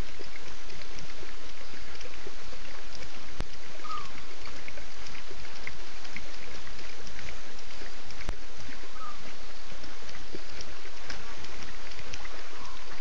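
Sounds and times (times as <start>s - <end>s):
steady night ambience hiss: 0.0s - 13.0s
faint high chirps: 3.8s - 4.3s, 8.9s - 9.3s.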